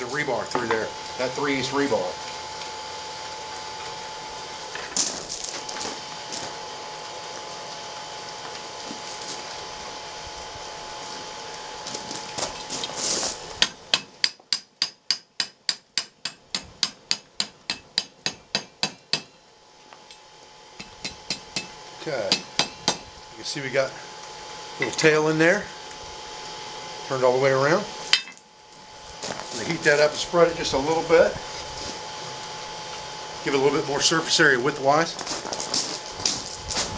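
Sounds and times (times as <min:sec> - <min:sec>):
steady hum: 0:00.0 - 0:36.9
hammer blows on hot metal: 0:20.8 - 0:23.2.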